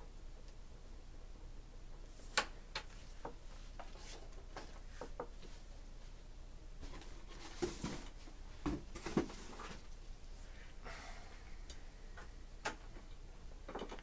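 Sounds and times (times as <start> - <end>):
rustling handling noise: 2.1 - 10.4.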